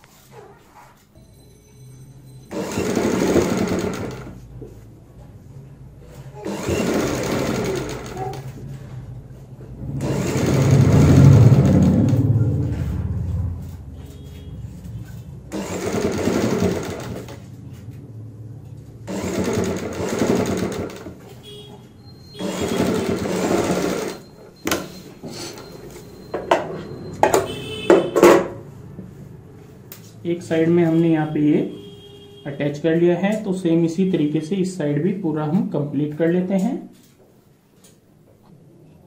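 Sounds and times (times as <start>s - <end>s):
sewing machine stitching: 2.5s - 4.4s, 6.4s - 8.6s, 9.9s - 12.3s, 15.5s - 17.5s, 19.0s - 21.2s, 22.3s - 24.8s.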